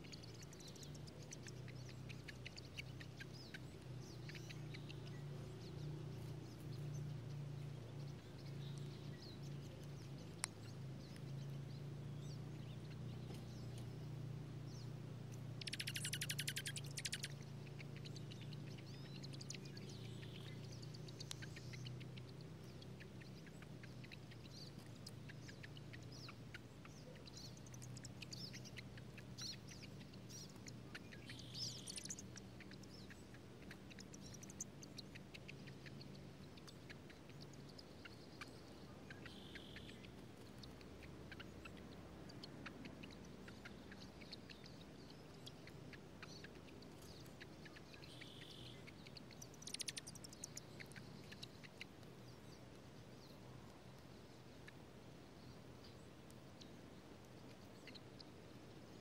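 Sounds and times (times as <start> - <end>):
bird chip call: 15.6 - 22.3, 37.2 - 41.8.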